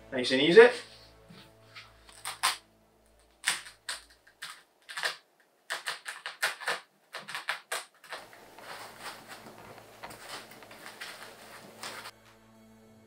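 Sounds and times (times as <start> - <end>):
sockets clicking into foam: 2.1 - 2.6, 3.4 - 8.4.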